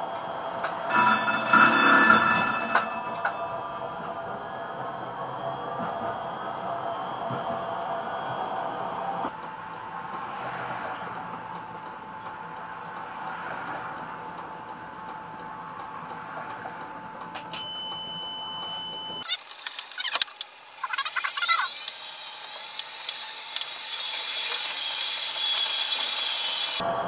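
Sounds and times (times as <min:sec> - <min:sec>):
tram cab electrical hum: 0:00.0 - 0:27.0
high tone: 0:00.9 - 0:04.3
high sliding warbling tones: 0:19.2 - 0:24.8.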